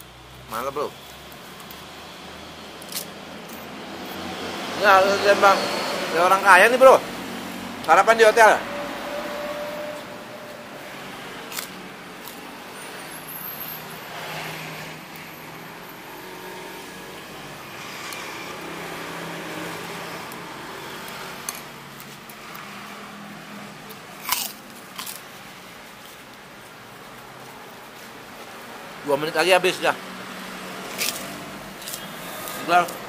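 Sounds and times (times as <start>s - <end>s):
person chewing and crunching: 24.2s - 25.3s.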